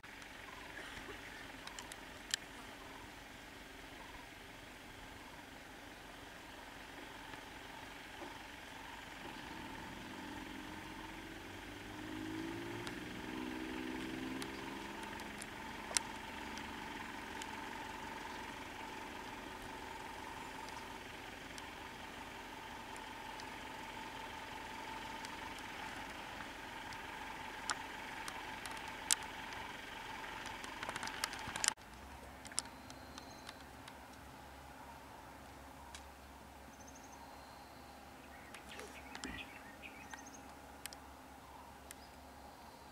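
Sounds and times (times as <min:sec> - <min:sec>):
vehicle engine idling: 0:00.0 - 0:42.9
sharp clicks: 0:25.0 - 0:34.2.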